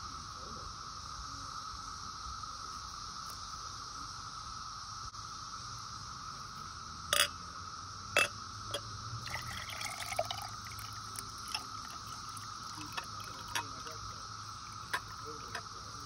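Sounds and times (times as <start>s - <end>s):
cicadas droning: 0.0s - 16.0s
glass clinks: 7.2s - 7.4s
liquid pouring into glass cup: 8.2s - 15.7s.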